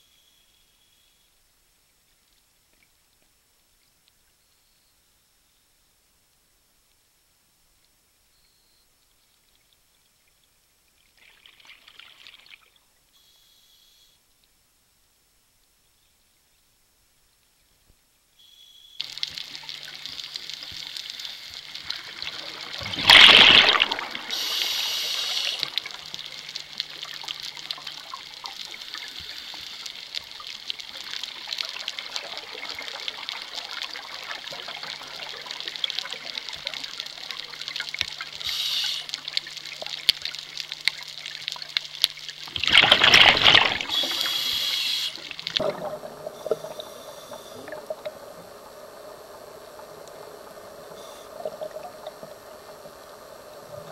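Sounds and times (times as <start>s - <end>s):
high hiss: 18.4s - 34.6s, 35.2s - 39.7s, 42.8s - 45.6s, 46.3s - 53.9s
regulator bubbles exhaled underwater: 21.6s - 29.4s, 30.5s - 53.9s.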